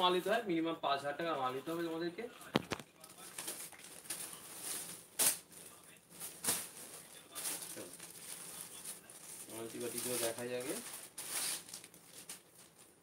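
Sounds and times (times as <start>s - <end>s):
plastic packaging rustling: 2.6s - 13.0s.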